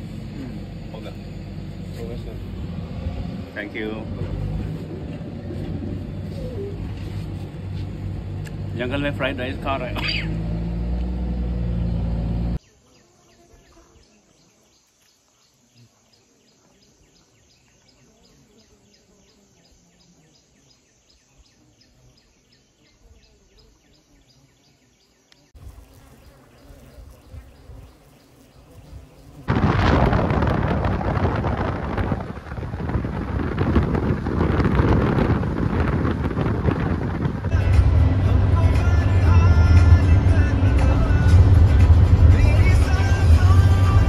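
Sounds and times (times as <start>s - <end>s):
car road noise: 0.0s - 12.6s, 28.6s - 44.0s
wind rushing over microphone: 26.8s - 44.0s
low rumble: 29.5s - 44.0s.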